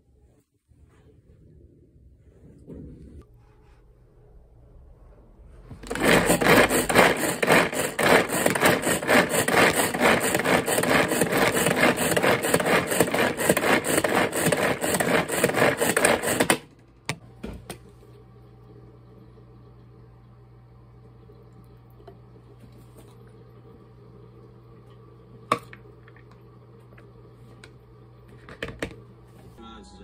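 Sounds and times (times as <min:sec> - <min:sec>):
pull-cord food chopper rattling: 0:05.8 - 0:16.7.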